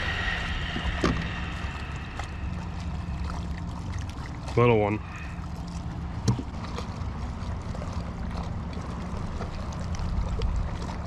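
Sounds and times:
wind rumbling on microphone: 0.0 - 6.8.

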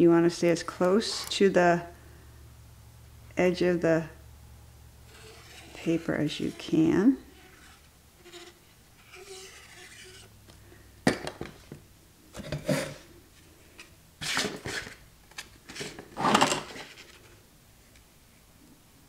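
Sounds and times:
paper rustling and sliding: 5.1 - 6.6, 7.4 - 10.3, 13.7 - 17.4.

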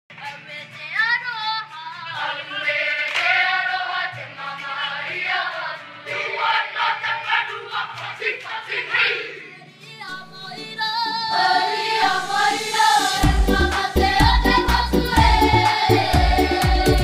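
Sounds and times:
choir singing: 2.0 - 17.0
low musical accompaniment: 10.0 - 17.0.

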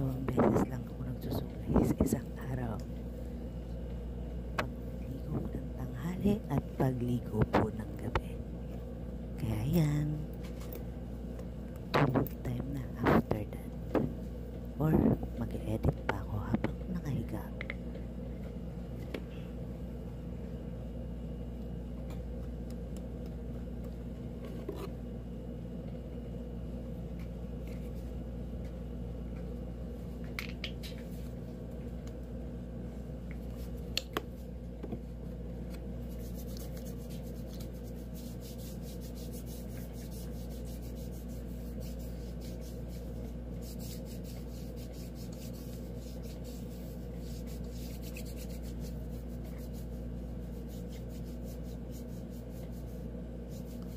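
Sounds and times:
low hum: 0.0 - 53.9
comb rasping through hair: 36.0 - 53.9.

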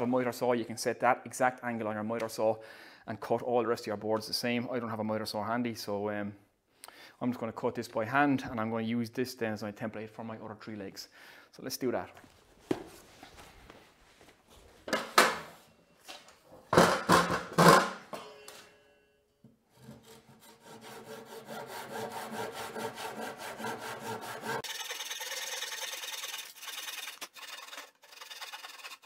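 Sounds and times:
hand saw cutting wood: 19.7 - 29.0.

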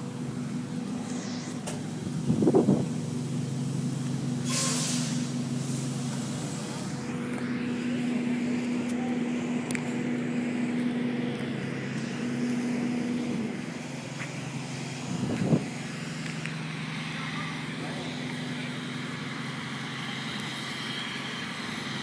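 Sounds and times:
vehicle engine running: 0.0 - 22.0
short hiss: 4.4 - 5.9.

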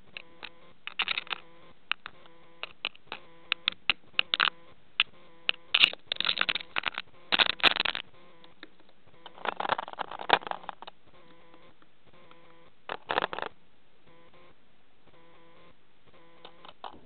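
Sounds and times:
beak pecking and scratching: 0.0 - 13.5
faint steady hum: 0.0 - 17.0.

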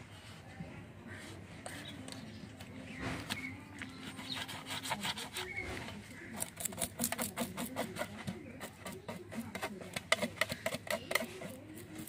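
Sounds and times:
knife scraping fish scales: 3.2 - 12.0.

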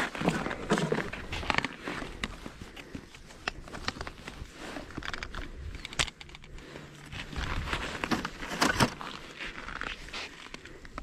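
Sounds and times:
plastic handling rustling: 7.1 - 10.7.

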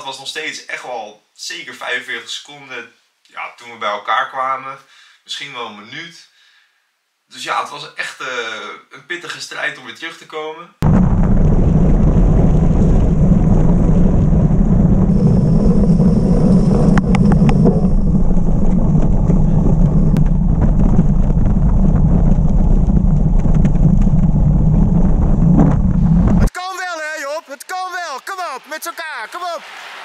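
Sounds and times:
wind buffeting microphone: 10.8 - 26.5.

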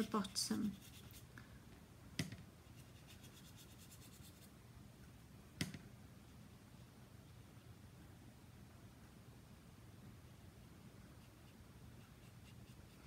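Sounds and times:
brush scratching on card: 0.0 - 1.3, 2.7 - 4.5, 11.2 - 13.0.

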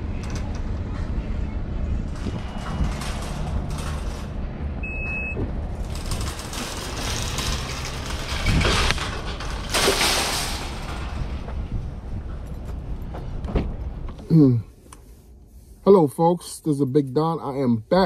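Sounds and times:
low rumble of traffic and wind: 0.0 - 18.0
short electronic beep: 4.8 - 5.4
loud rushing noises: 5.4 - 12.4.

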